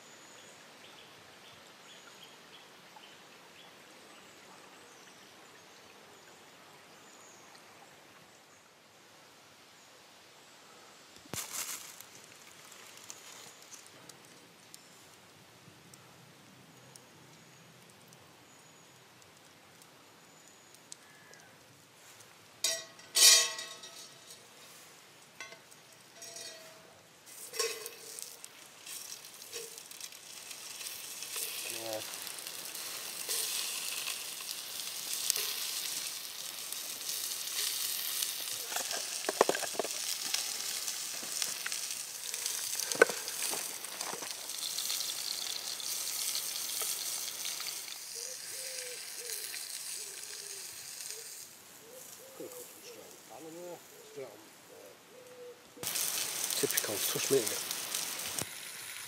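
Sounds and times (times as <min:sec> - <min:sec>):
sharp metal clinks: 0:26.2 - 0:26.9
sausages sizzling in a pan: 0:27.3 - 0:52.7, 0:55.8 - 0:59.0.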